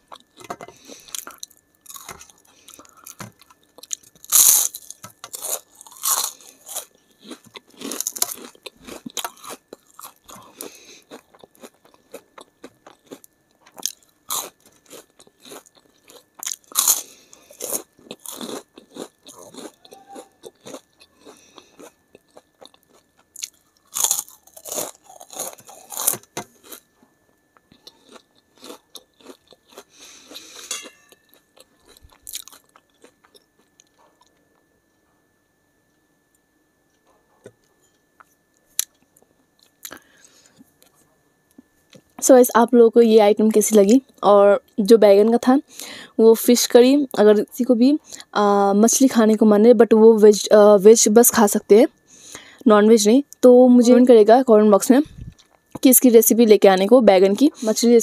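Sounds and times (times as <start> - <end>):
crunching and chewing crisps: 0.0 - 34.7, 37.6 - 42.2.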